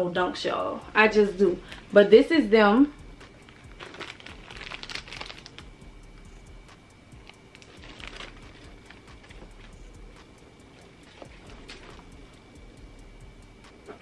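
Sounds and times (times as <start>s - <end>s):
plastic bag crinkling: 3.3s - 5.7s, 7.2s - 9.8s, 10.8s - 12.1s.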